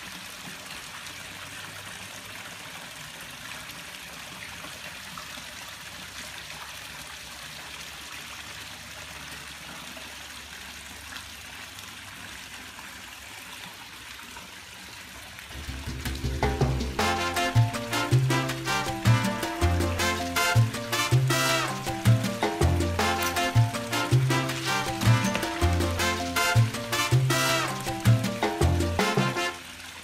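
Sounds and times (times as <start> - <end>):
trickling pool water: 0.0 - 30.0
music with a beat: 15.6 - 29.5.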